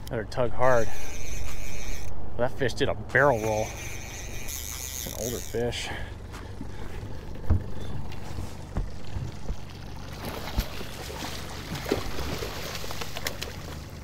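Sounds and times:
boat motor humming: 0:00.0 - 0:14.0
fish thrashing and splashing: 0:07.1 - 0:14.0
sharp knocks: 0:08.7 - 0:09.7.

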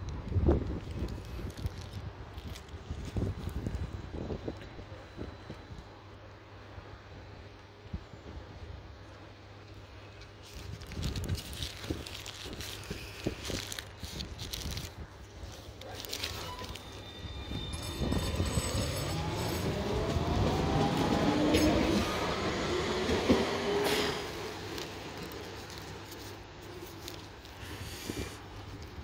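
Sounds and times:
wheels rumbling on rail: 0:10.8 - 0:29.0
tram motors whining: 0:16.2 - 0:26.0.

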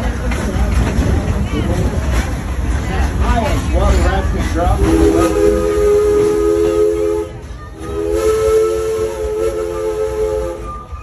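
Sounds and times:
train rumbling: 0:00.0 - 0:11.0
steam locomotive whistle: 0:04.8 - 0:11.0.

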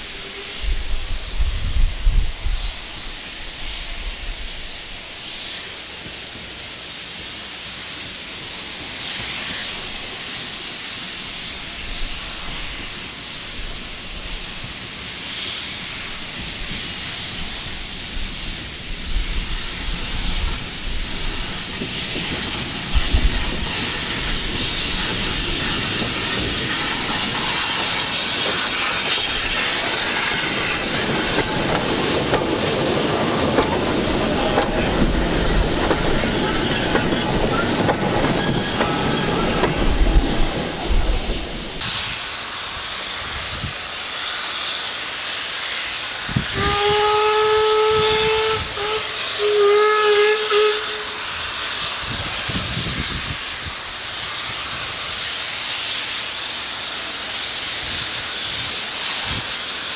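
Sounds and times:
steam locomotive hissing: 0:00.0 - 0:59.9.

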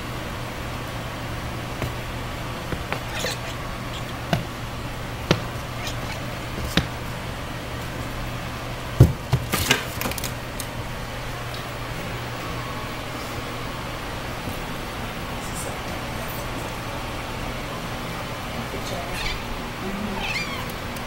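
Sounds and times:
steady low hum: 0:00.0 - 0:09.5
animals thumping and scuffling: 0:01.7 - 0:07.2.

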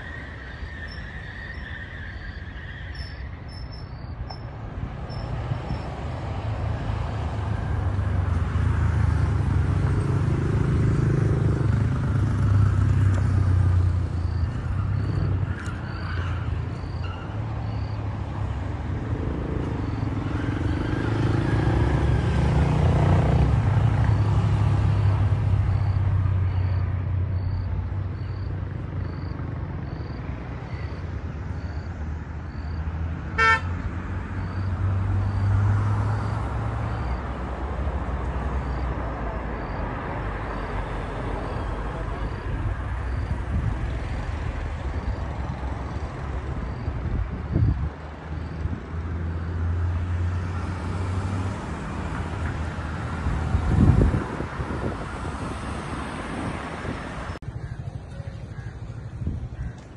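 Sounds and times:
insect high chirp: 0:00.0 - 0:05.9, 0:12.4 - 0:18.3, 0:25.6 - 0:32.9
car horn toot: 0:33.4 - 0:33.7.

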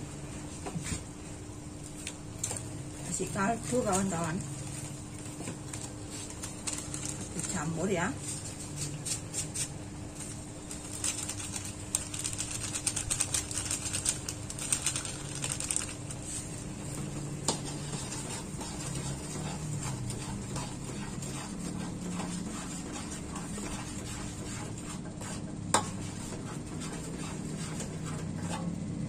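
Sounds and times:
plastic sachet crinkling: 0:10.9 - 0:16.2
metal spatula scraping in a wok: 0:17.4 - 0:28.8.

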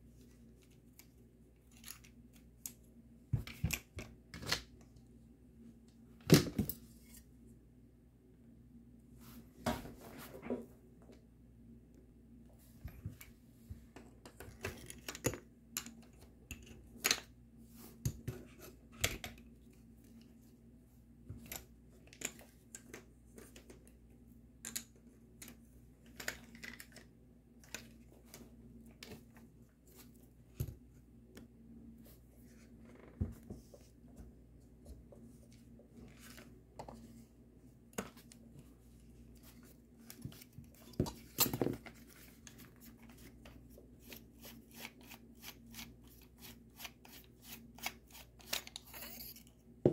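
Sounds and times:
clicks and metal clinks of parts: 0:00.6 - 0:04.6, 0:48.4 - 0:49.6.

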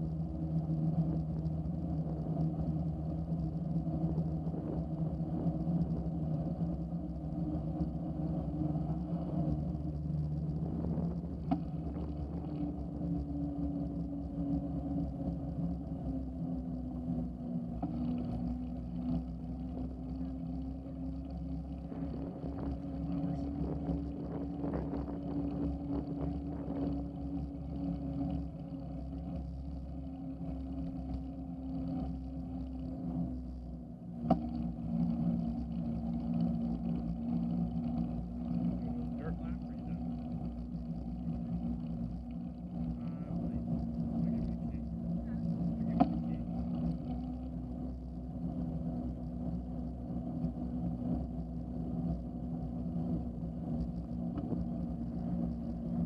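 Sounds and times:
bicycle tyre hum: 0:00.0 - 0:56.0
rumble of road vibration: 0:00.0 - 0:56.0.

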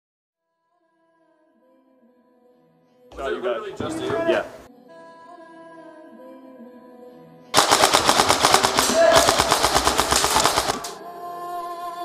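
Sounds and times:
airsoft rifle full-auto burst: 0:07.6 - 0:11.0.

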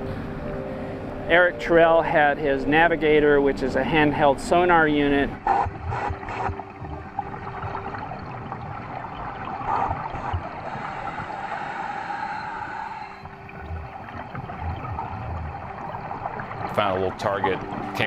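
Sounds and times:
underwater gurgling water noise: 0:04.5 - 0:18.0
soft low thumps: 0:05.0 - 0:11.4, 0:13.3 - 0:18.0.

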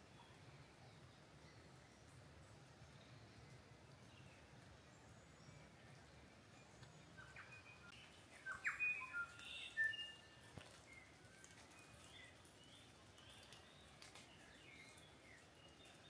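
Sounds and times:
low steady hiss: 0:00.0 - 0:16.0
songbird whistling and chipping: 0:07.2 - 0:10.3.

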